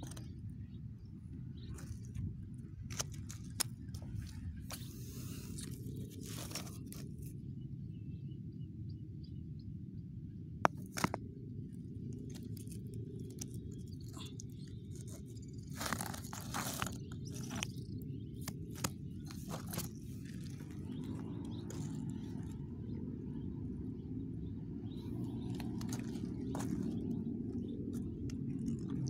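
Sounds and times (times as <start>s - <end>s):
steady low rumble: 0.0s - 29.0s
footsteps crunching on stones: 15.0s - 22.2s, 25.4s - 29.0s.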